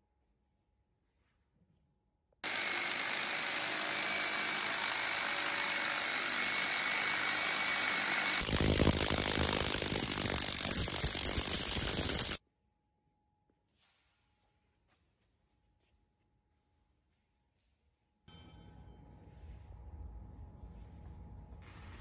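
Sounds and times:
hammer drill drilling into concrete: 2.4s - 12.4s.

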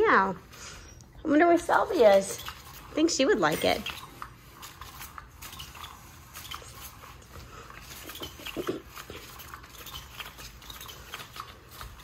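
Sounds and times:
dog whining: 7.8s - 11.5s.

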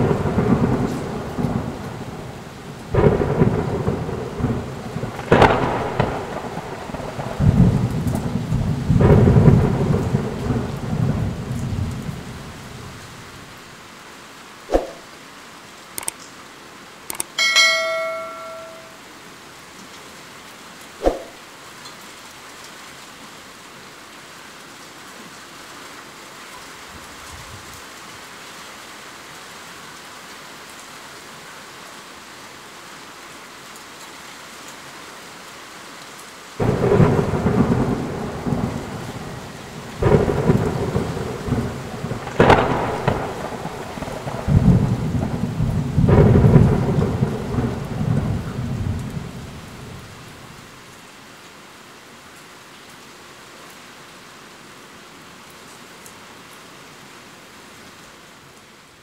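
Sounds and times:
thunder rolling and cracking: 0.0s - 12.5s, 36.6s - 50.1s
heavy rain falling: 0.0s - 59.0s.

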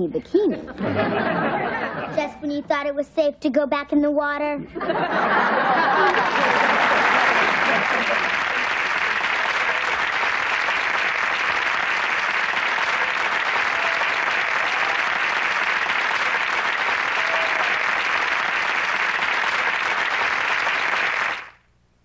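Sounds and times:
studio audience applauding: 5.2s - 21.6s.

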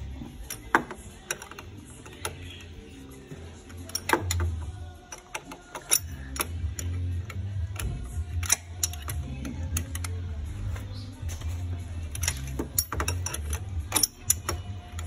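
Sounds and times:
wrench clicking on spark plug socket: 0.4s - 2.8s, 3.7s - 10.3s, 12.1s - 15.0s.

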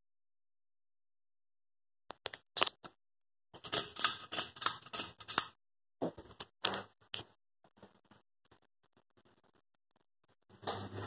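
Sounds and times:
rapid irregular clicking and clattering: 3.6s - 5.6s.

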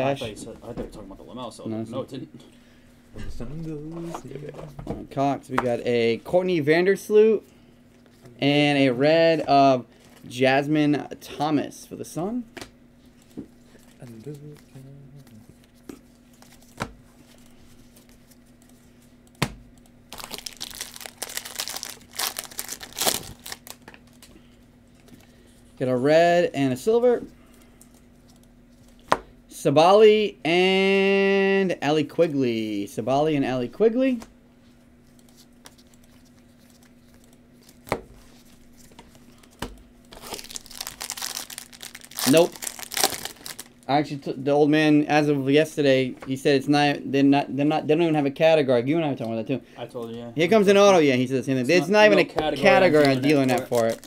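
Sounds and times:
faint steady hum: 0.0s - 54.0s
foil wrapper crinkling and tearing: 20.1s - 24.3s, 40.1s - 43.9s, 52.9s - 54.0s.

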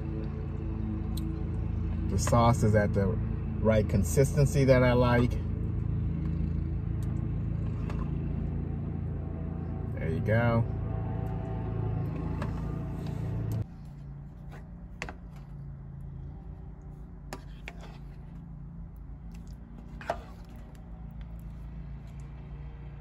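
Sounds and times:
steady low hum: 0.0s - 23.0s
spoon stirring thick curry: 16.8s - 22.2s.

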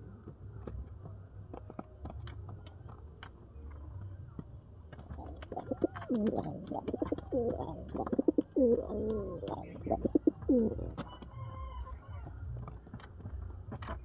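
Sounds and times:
pigeons cooing: 5.0s - 11.1s.

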